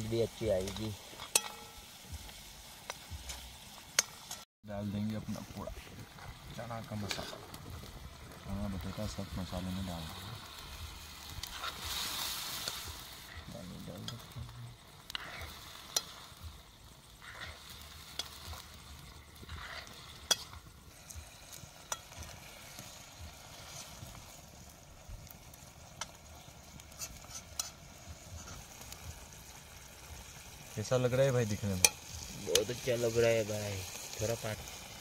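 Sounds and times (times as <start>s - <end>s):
food sizzling in a pan: 0.0s - 35.0s
spoon clacking against pan: 1.3s - 1.8s, 20.2s - 20.6s.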